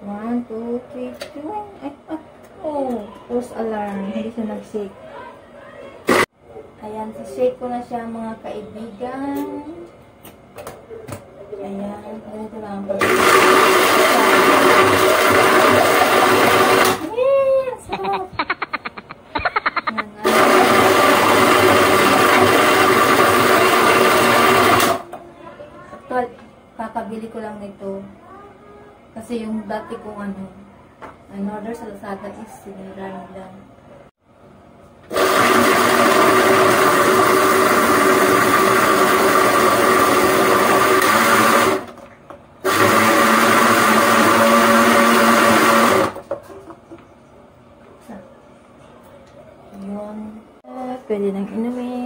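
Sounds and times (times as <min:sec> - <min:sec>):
electric blender running: 0:13.0 - 0:17.1, 0:19.6 - 0:25.1, 0:35.1 - 0:42.0, 0:42.6 - 0:46.4.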